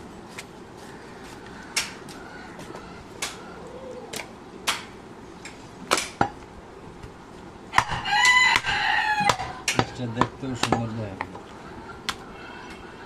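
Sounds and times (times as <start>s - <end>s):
cleaver knocking on wooden block: 7.8s - 11.3s.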